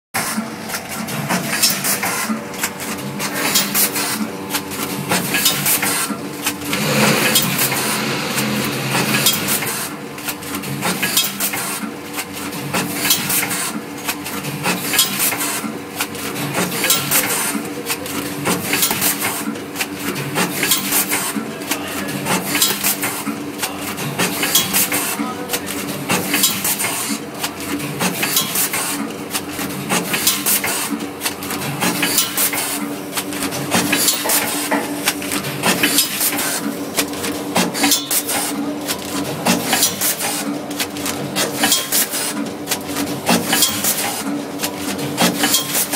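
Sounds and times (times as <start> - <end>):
packing machine clattering: 3.4 - 11.3, 29.4 - 45.9.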